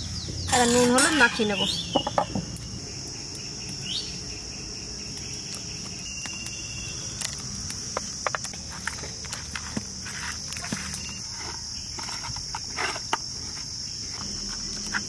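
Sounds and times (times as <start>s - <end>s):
bird chirp: 0.0s - 7.4s
insects chirring: 0.0s - 15.0s.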